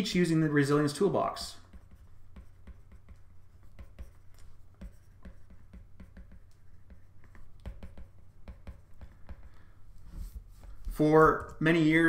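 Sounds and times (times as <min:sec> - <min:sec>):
stylus tapping on glass screen: 0:01.6 - 0:09.7.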